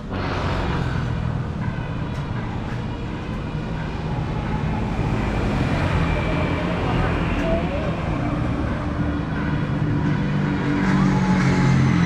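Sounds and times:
vehicle rumbling: 0.0s - 12.0s.

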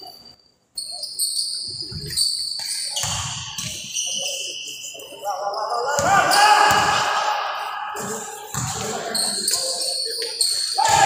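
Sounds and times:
basketball bouncing on court: 2.0s - 3.8s, 6.0s - 7.2s, 8.4s - 9.0s.

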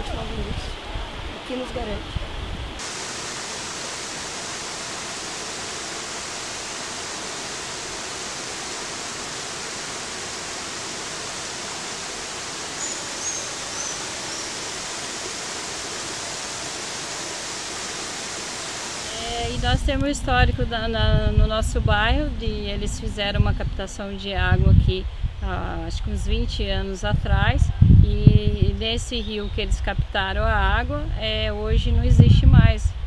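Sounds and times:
waterfall rushing over rocks: 2.8s - 19.8s
faint high chirps: 12.7s - 14.7s.

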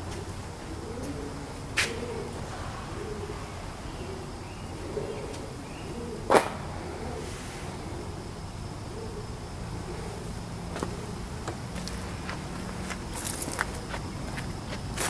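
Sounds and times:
pigeons cooing: 0.0s - 15.0s
sharp snap: 6.3s - 6.7s.

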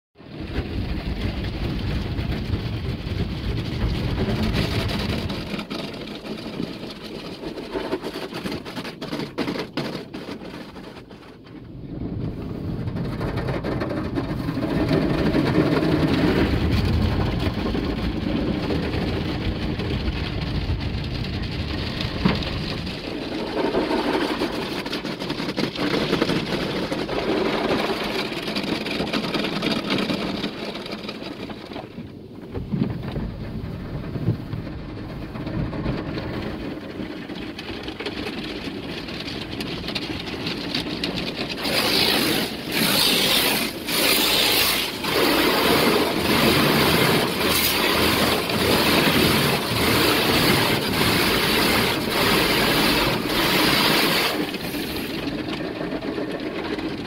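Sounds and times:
car wash brushes scrubbing: 4.4s - 11.4s, 21.4s - 32.0s, 36.4s - 56.6s
water spraying on glass: 41.5s - 55.1s.

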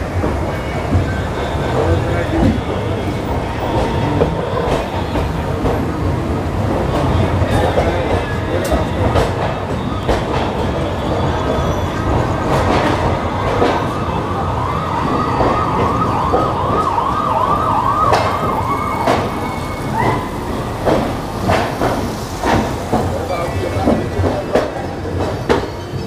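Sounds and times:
train running rumble: 0.0s - 26.0s
siren yelping: 13.4s - 20.4s.

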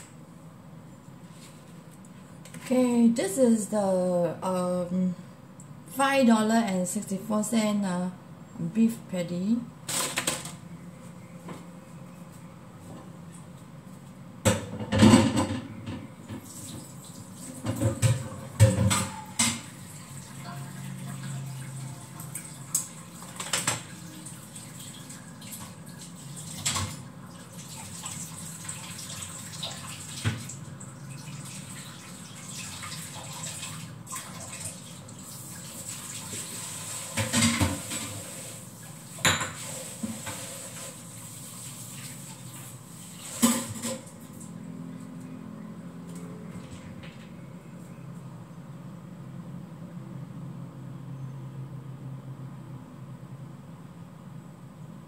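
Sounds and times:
dishes clattering in sink: 14.5s - 16.9s, 17.5s - 19.7s, 36.3s - 38.4s, 39.1s - 40.9s, 43.2s - 44.1s
tap water running: 15.2s - 44.4s.

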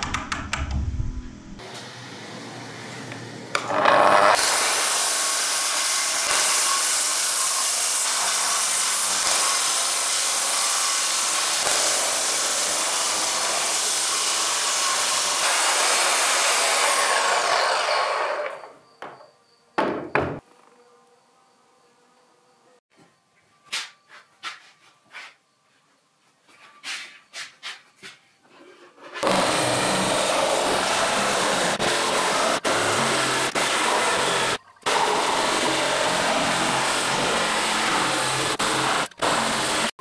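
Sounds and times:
circular saw cutting wood: 1.6s - 18.8s, 29.2s - 40.0s.

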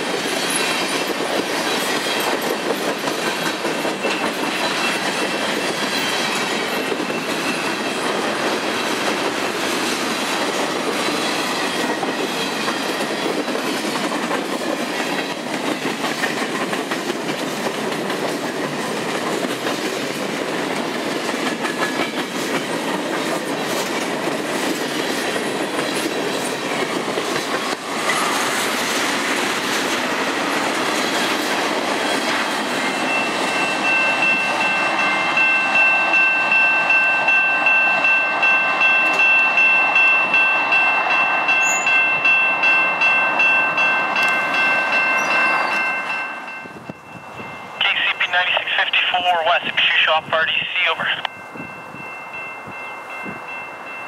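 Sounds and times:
clickety-clack over rail joints: 0.0s - 33.6s
train wheels rumbling on rail: 0.0s - 47.8s.

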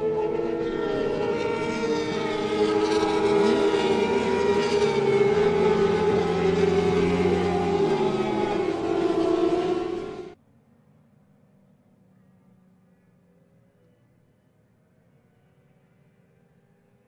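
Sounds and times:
racing motorcycle engines: 0.0s - 10.4s.

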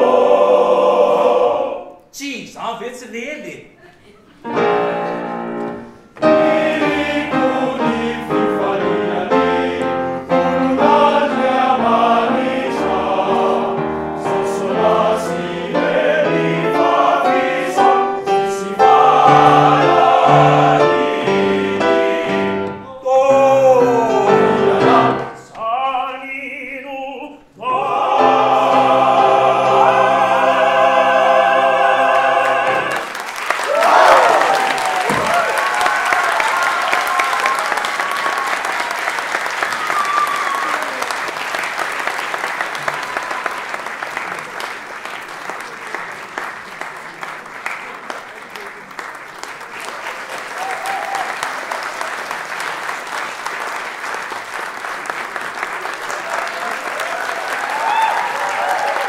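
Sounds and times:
male choir singing: 0.0s - 2.0s, 4.5s - 5.5s, 6.2s - 33.1s.

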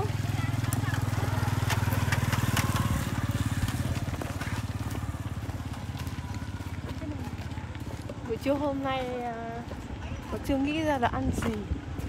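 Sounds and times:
motorbike engine running: 0.0s - 12.0s.

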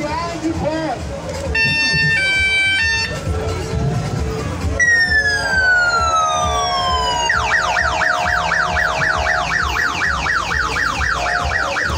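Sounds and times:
electronic siren wailing and yelping: 4.8s - 11.9s.

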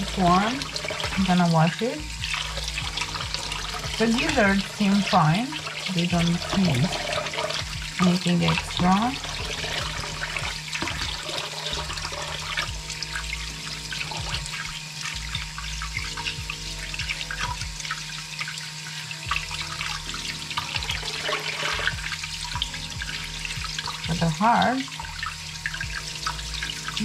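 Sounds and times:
tap running into bowl of water: 0.0s - 14.8s
water splashing: 0.0s - 27.0s.

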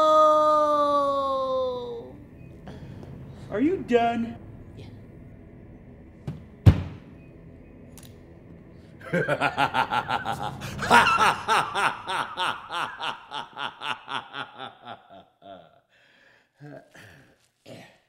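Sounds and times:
sharp thunk: 6.2s - 7.0s
person laughing: 9.0s - 15.8s.

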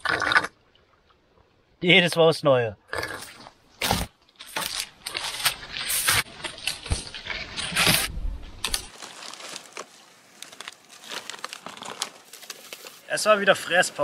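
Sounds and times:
twigs crackling: 3.3s - 14.0s
dry wood cracking and snapping: 3.8s - 13.0s.

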